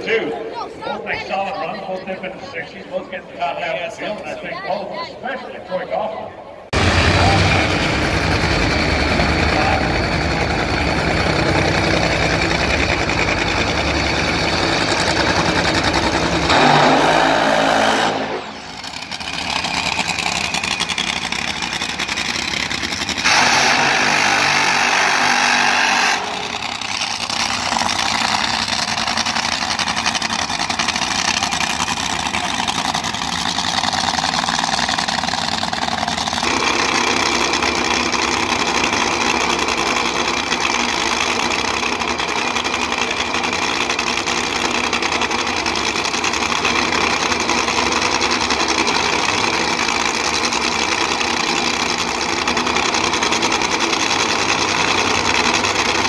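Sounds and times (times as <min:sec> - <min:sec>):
nitro drag car engines running rough: 0:06.7 - 0:56.0.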